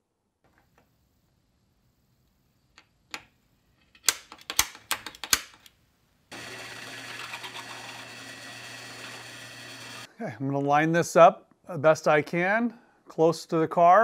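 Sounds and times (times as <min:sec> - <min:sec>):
drill bit cutting aluminum: 0:06.3 - 0:10.1
drill press humming: 0:06.3 - 0:10.1.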